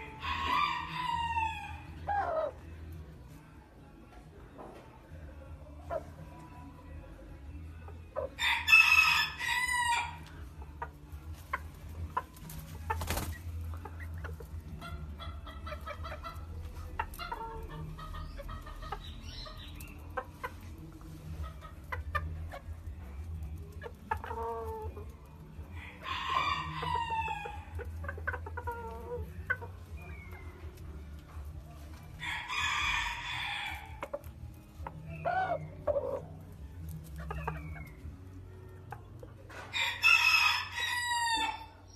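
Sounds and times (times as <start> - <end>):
roosters crowing: 0.0 - 2.8, 8.2 - 10.5, 25.6 - 30.7, 32.1 - 34.2, 39.6 - 41.9.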